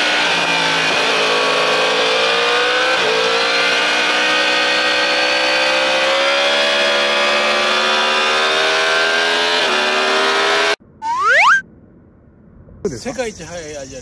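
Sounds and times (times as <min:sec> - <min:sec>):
motorcycle engine at high revs: 0:00.0 - 0:10.8.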